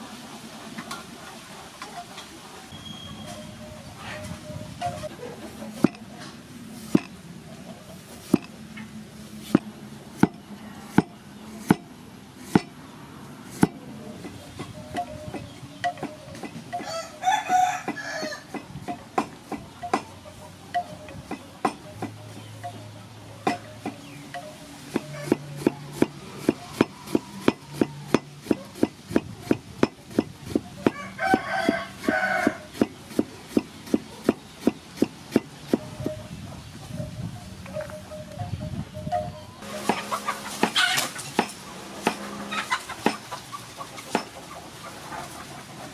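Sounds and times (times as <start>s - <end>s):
chicken calling: 1.2s - 6.4s, 13.8s - 29.5s, 35.6s - 41.3s, 42.1s - 45.9s
cleaver chopping on wooden board: 6.9s - 7.1s, 9.5s - 11.9s, 12.5s - 12.8s, 13.5s - 13.8s, 41.4s - 42.2s, 43.0s - 43.2s
cleaver chopping on wooden block: 6.9s - 7.2s, 9.5s - 11.9s, 12.5s - 12.8s, 13.5s - 13.8s, 24.9s - 32.2s, 41.4s - 42.2s, 43.0s - 43.2s.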